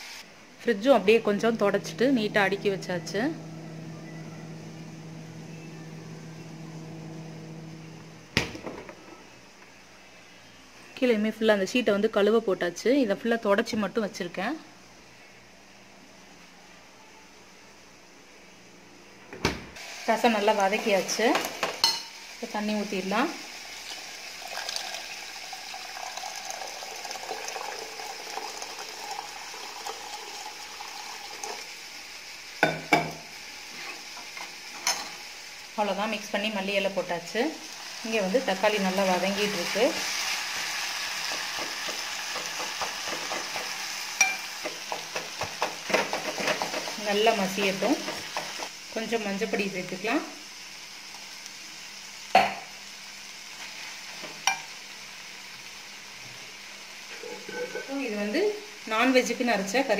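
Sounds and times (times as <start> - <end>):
hot mixture sizzling: 0.0 - 10.0, 19.8 - 59.9
refrigerator hum: 0.9 - 9.4
water pouring into a pot: 23.6 - 31.8.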